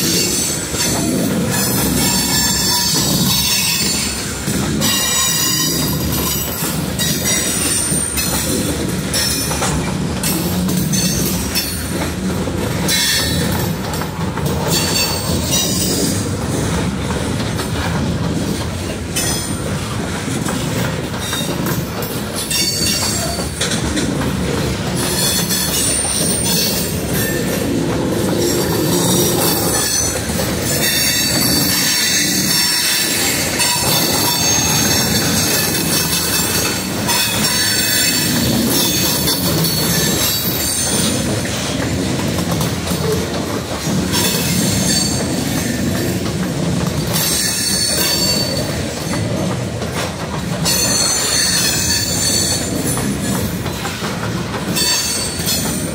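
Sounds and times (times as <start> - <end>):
train wheels rumbling on rail: 0.0 - 55.9
wheels clicking over rail joints: 0.0 - 55.9
high wheel squeal: 1.7 - 8.3, 28.4 - 41.1, 47.2 - 48.8, 50.6 - 52.7.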